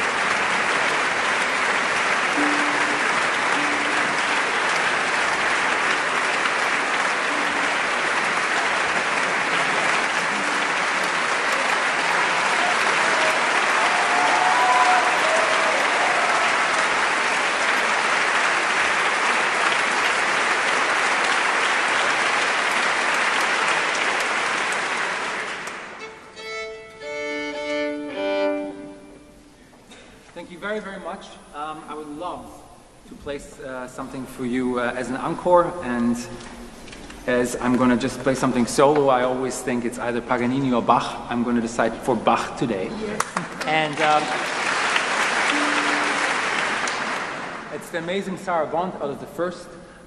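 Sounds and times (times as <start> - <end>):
audience applauding: 0.0 - 29.1, 36.0 - 48.2
violin bowed notes: 2.3 - 9.2, 26.0 - 29.6, 45.5 - 46.7.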